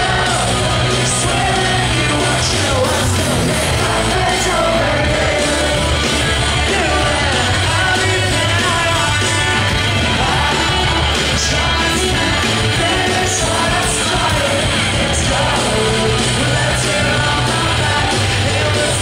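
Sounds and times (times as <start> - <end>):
drums: 0.0 - 19.0
electric guitars: 0.0 - 19.0
person singing: 0.0 - 19.0.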